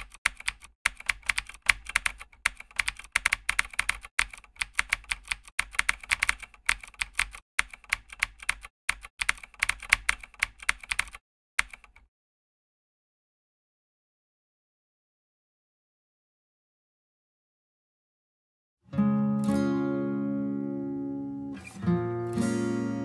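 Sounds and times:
keyboard typing clicks: 0.0 - 12.1.

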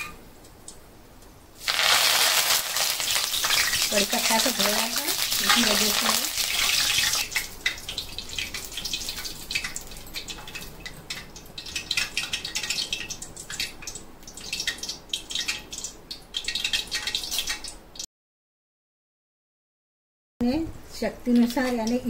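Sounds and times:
leaves crackling in hot oil: 1.5 - 17.8, 20.9 - 22.0.

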